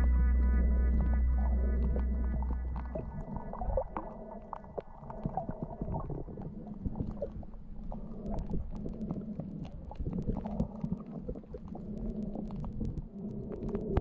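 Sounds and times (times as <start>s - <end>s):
underwater rumble of moving water: 0.0s - 14.0s
sharp clicks: 8.0s - 14.0s.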